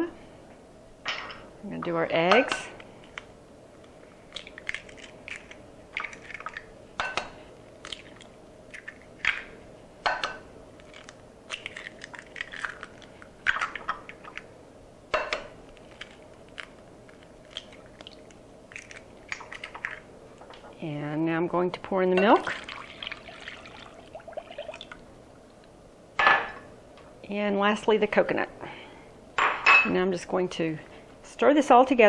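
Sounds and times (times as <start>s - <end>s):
eggshells crackling: 3.0s - 6.8s, 7.7s - 9.6s, 10.7s - 14.5s, 15.6s - 20.1s, 22.4s - 25.0s
eggs cracking against glass bowl: 4.3s - 14.5s, 15.1s - 20.6s.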